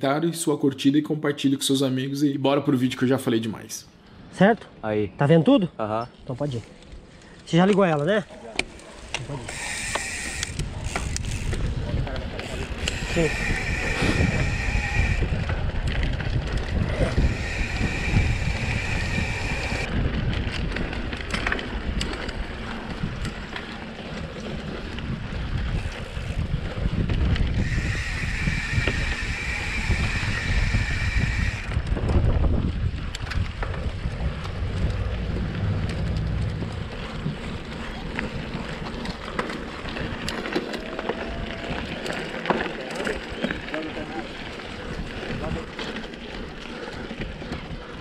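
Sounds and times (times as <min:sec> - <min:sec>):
bike rattling and knocking: 0:08.0 - 0:31.2, 0:31.8 - 0:48.0
wind buffeting microphone: 0:09.0 - 0:48.0
high buzz: 0:09.5 - 0:10.6, 0:12.8 - 0:15.4, 0:17.0 - 0:19.9, 0:27.6 - 0:31.8
tyres rumbling over dirt: 0:31.0 - 0:48.0.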